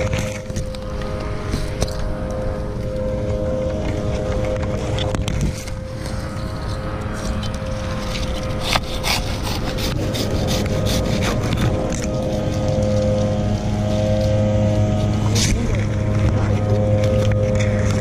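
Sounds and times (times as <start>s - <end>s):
steady low hum: 0.0s - 18.0s
hand saw rasping strokes: 6.2s - 12.1s.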